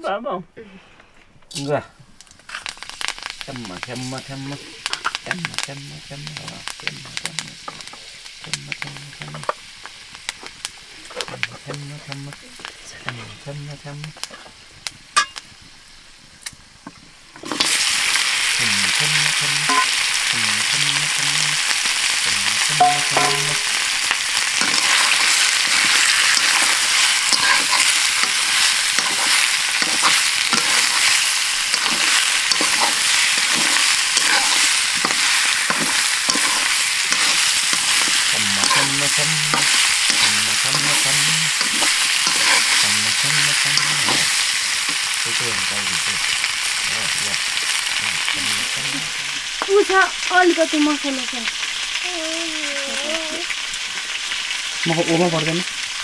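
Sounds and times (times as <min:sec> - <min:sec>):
oil crackling: 0:01.4 - 0:56.0
meat sizzling in oil: 0:01.5 - 0:56.0
metal spatula scraping pan: 0:19.7 - 0:20.0, 0:22.8 - 0:23.9, 0:24.6 - 0:44.4.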